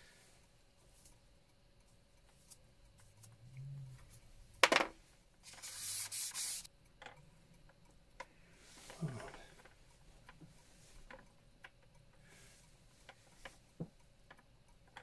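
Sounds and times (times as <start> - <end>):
hiss: 5.4 - 6.7.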